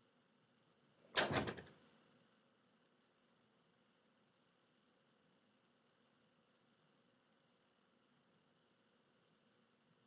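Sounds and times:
faint room hiss: 0.0s - 10.0s.

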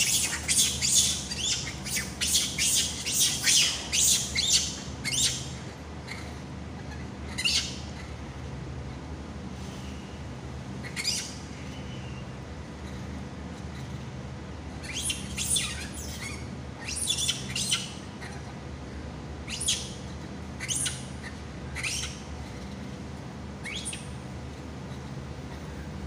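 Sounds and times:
high-pitched squeaky calls: 0.0s - 8.2s, 10.8s - 11.5s, 14.8s - 18.6s, 19.4s - 22.9s, 23.5s - 25.8s
steady low hum: 0.0s - 26.0s.

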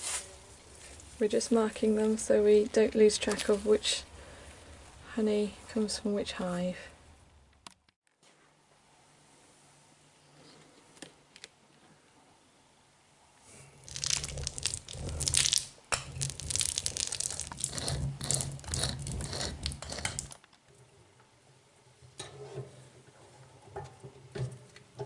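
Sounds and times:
roller crackling through wax: 13.8s - 20.5s.

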